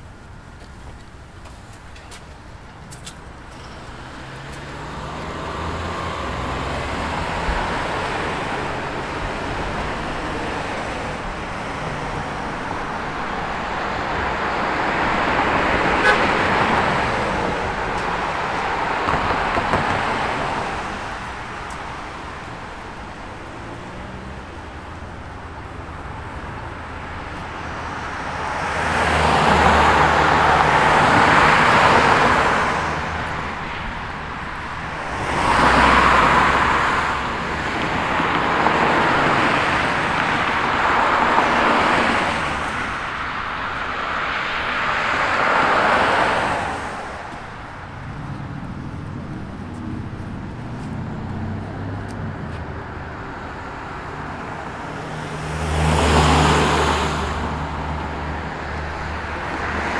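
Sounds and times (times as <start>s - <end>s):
cars driving past: 2.0s - 59.9s.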